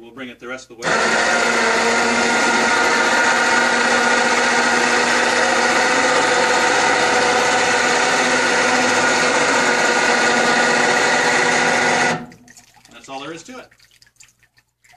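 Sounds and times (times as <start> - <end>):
electric winch motor running: 0.8 - 12.3.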